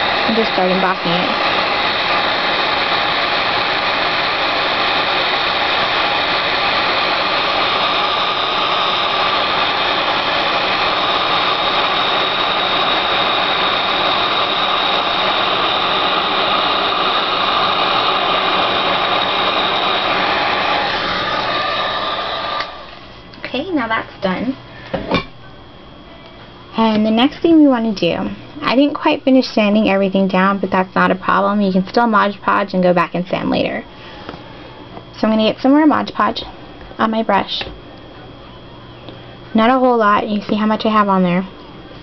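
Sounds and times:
heat gun blowing: 0.0 - 23.1.

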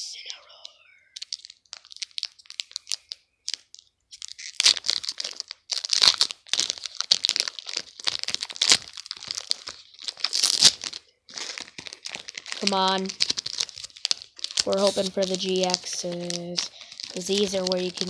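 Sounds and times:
foil wrapper crinkling and tearing: 0.6 - 18.0.

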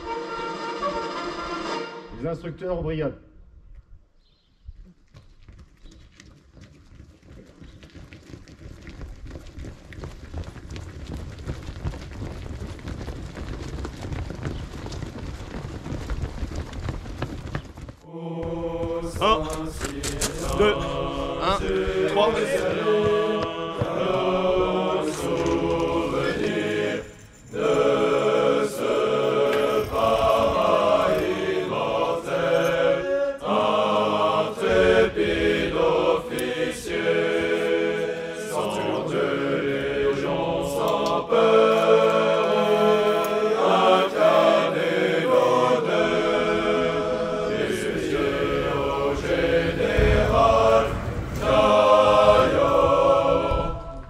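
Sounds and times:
group of voices chanting: 18.1 - 27.0, 27.6 - 54.0.

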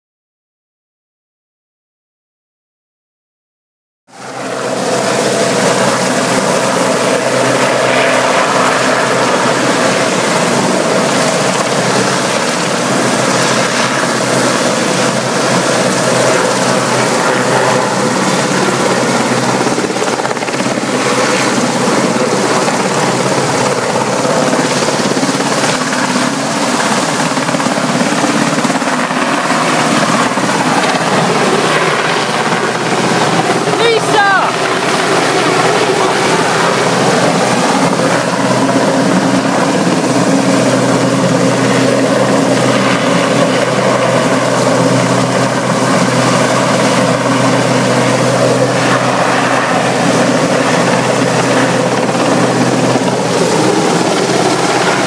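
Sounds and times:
helicopter rotor and engine noise: 4.1 - 55.0.

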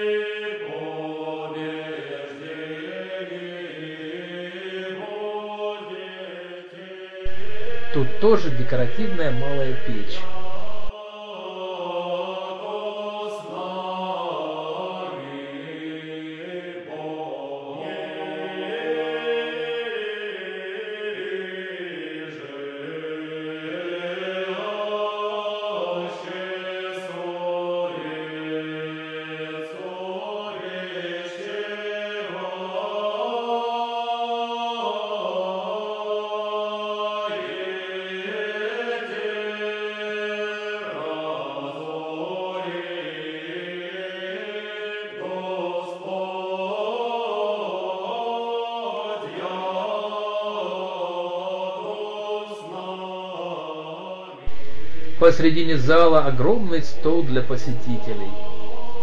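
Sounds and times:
chant-like voices holding notes: 0.0 - 59.0
steady low drone note: 7.3 - 10.9.

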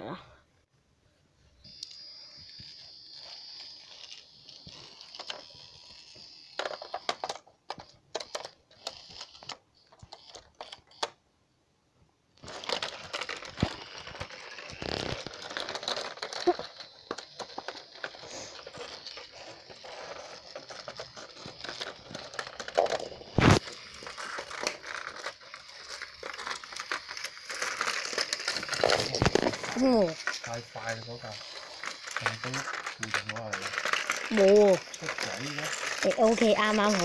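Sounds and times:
plastic toy train clicks and rattles: 1.7 - 11.2, 12.4 - 37.0
toy train clattering: 1.7 - 11.2, 12.4 - 37.0.

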